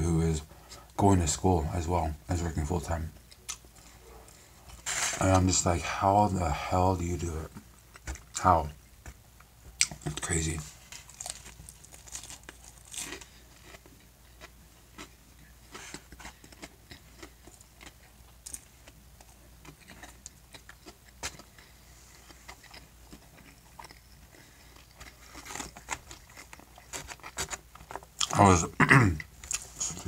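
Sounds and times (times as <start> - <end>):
person chewing food: 9.0 - 28.4, 29.3 - 30.0.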